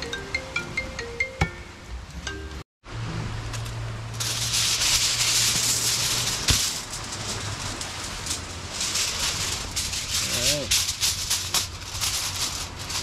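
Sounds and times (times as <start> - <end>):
foil snap: 3.5 - 13.0
aluminium foil crinkling: 4.1 - 13.0.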